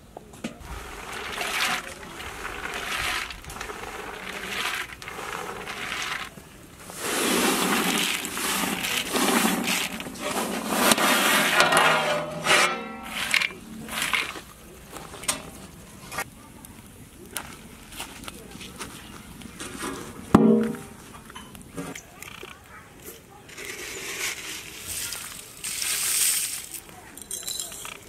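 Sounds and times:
peanuts pouring into metal pot: 0.6s - 12.4s, 13.0s - 14.6s, 23.5s - 26.8s.

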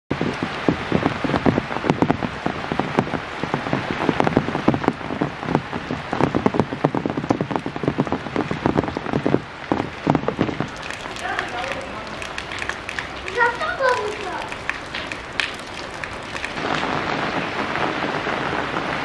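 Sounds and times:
close raindrop impacts: 0.1s - 19.0s
rain on wet ground: 0.1s - 19.0s.

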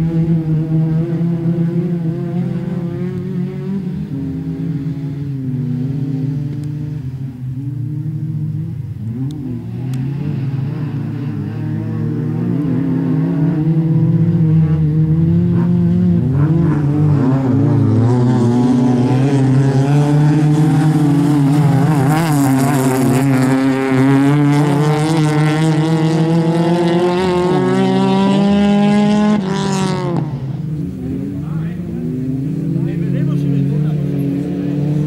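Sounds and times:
racing car engines accelerating: 0.0s - 35.0s.

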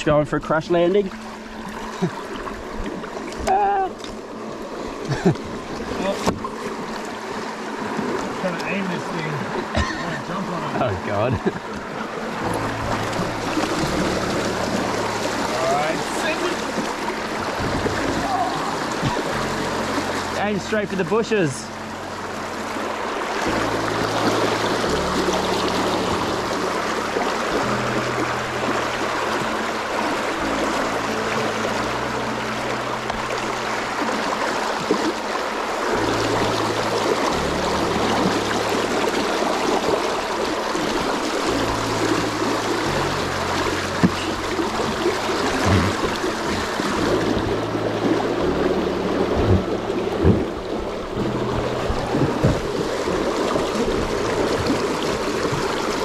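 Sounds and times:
river water rushing over rapids: 0.0s - 56.0s
background music with bass line: 41.5s - 54.9s.

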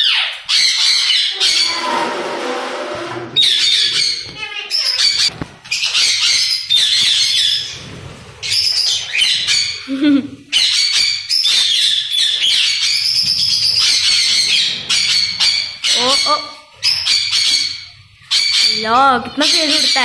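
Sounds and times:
parrots screeching and chattering: 0.0s - 20.0s.

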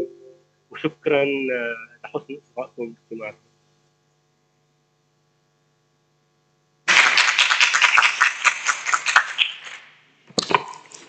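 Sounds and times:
faint mains hum: 0.0s - 11.0s
audience applauding: 6.9s - 9.8s.

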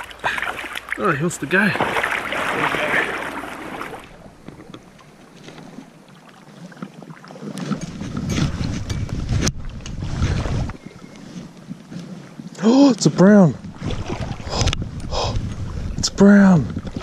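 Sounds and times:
stream water splashing: 0.0s - 8.2s, 13.3s - 14.8s
flowing river: 0.0s - 17.0s
wind rumble on microphone: 7.6s - 11.8s, 13.5s - 17.0s.

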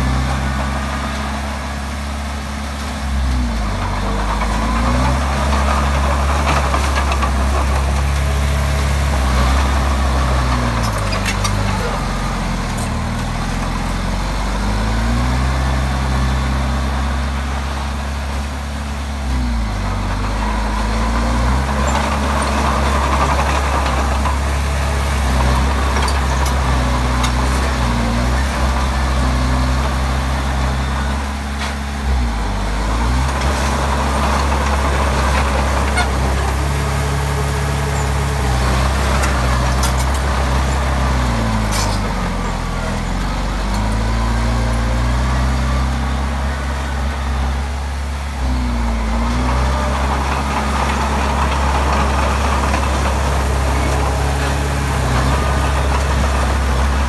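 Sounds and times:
bulldozer diesel engine running: 0.0s - 57.0s.

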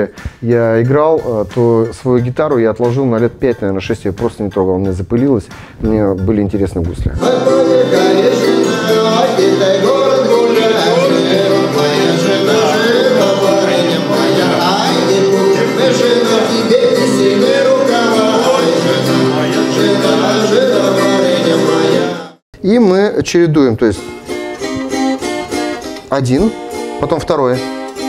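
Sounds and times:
man singing: 6.9s - 22.4s.

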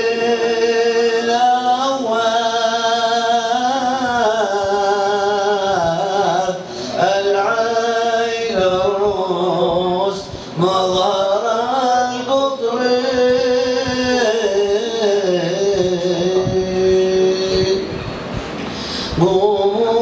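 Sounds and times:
man singing devotional song: 0.0s - 18.0s, 18.7s - 20.0s.

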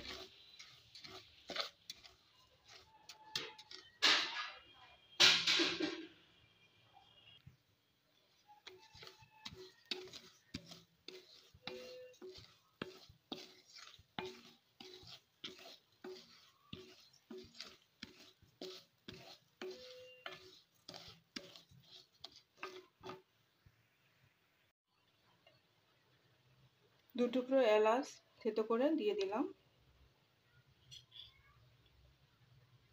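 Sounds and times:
spatula scraping rice in metal pan: 0.0s - 4.7s, 8.2s - 23.3s.

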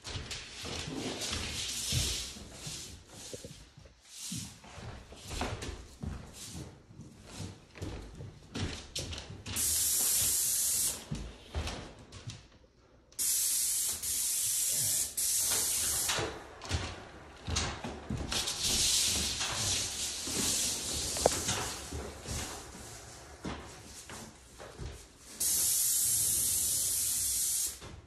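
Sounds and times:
spray gun hissing: 9.6s - 11.0s, 13.2s - 16.2s, 25.4s - 27.8s.

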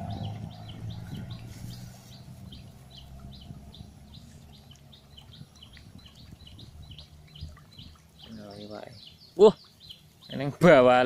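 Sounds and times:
low rumble: 0.0s - 7.1s
bird chirping: 0.0s - 11.0s.

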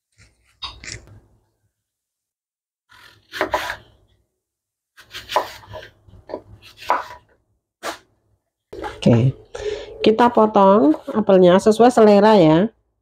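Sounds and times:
knife cutting apple on wooden board: 2.9s - 4.0s, 5.0s - 8.1s.

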